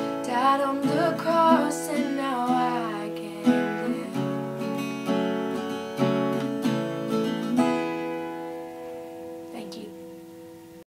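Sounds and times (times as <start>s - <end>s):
acoustic guitar strummed slowly: 0.0s - 10.8s.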